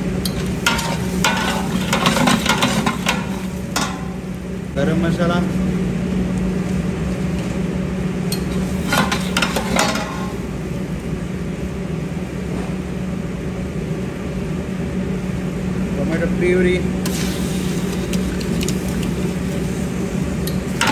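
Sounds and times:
spices sizzling in hot oil: 0:00.0 - 0:04.4, 0:17.0 - 0:20.9
steady low hum: 0:00.0 - 0:20.9
metal spatula scraping pot: 0:00.6 - 0:04.0.

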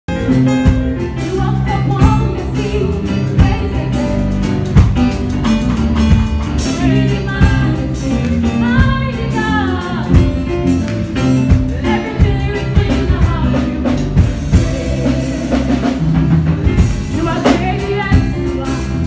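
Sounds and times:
backing track with bass and beat: 0:00.1 - 0:19.0
woman singing into microphone: 0:01.3 - 0:04.2, 0:06.6 - 0:10.3, 0:11.5 - 0:19.0.

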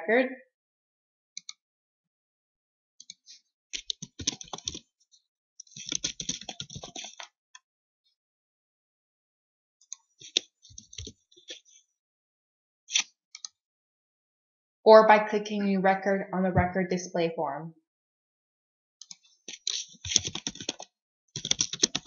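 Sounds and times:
typing on computer keyboard: 0:03.8 - 0:04.8, 0:05.7 - 0:07.3, 0:19.0 - 0:22.0.

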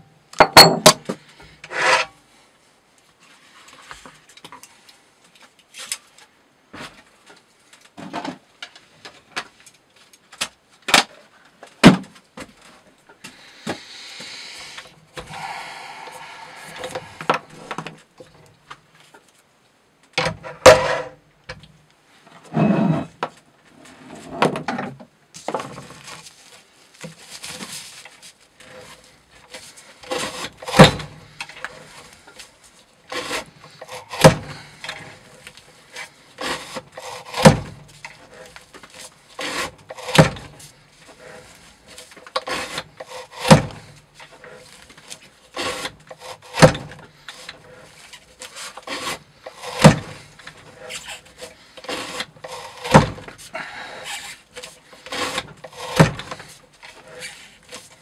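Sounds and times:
wood and steel rubbing and sliding: 0:01.5 - 0:02.2, 0:13.4 - 0:18.1, 0:22.2 - 0:58.0.

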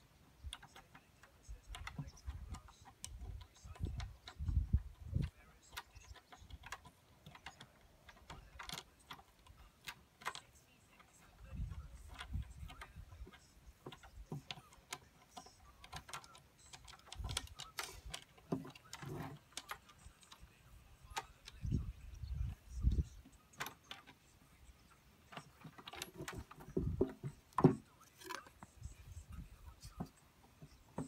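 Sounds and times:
clicks and knocks in plastic drum: 0:00.4 - 0:20.5, 0:25.2 - 0:28.7.

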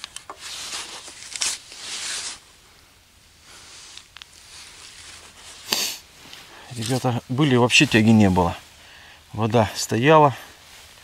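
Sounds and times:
rustling and scraping handling: 0:00.0 - 0:02.5, 0:03.4 - 0:08.7.

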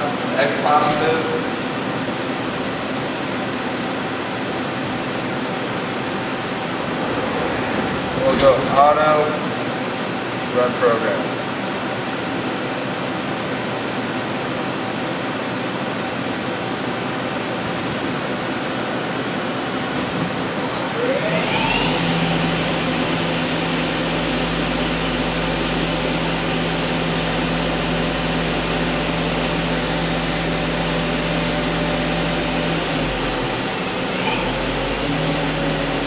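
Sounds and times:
machine hum: 0:00.6 - 0:10.6
spindle whine: 0:04.8 - 0:10.4.

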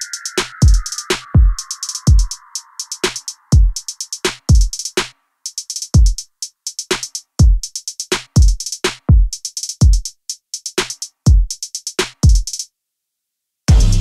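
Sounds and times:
electronic music drum-machine beat: 0:00.0 - 0:12.7, 0:13.7 - 0:14.0.

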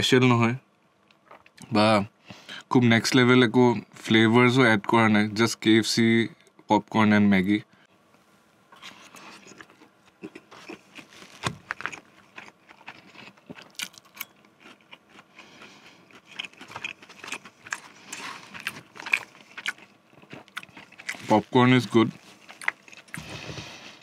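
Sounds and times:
close chewing: 0:08.8 - 0:24.0.

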